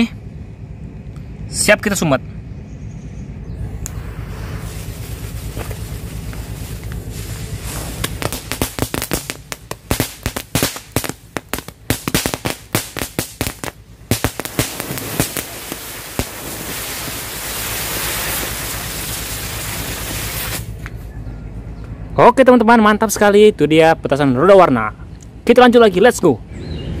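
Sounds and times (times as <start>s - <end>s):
firecracker hissing: 3.6s - 21.0s
firecracker sharp cracks: 3.8s - 20.9s.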